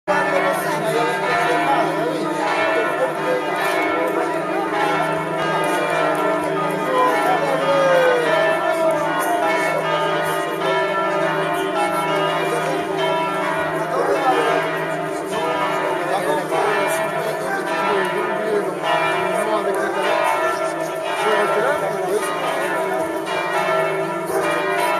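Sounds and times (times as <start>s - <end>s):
church bells pealing: 0.1s - 24.9s
voices: 0.1s - 24.9s.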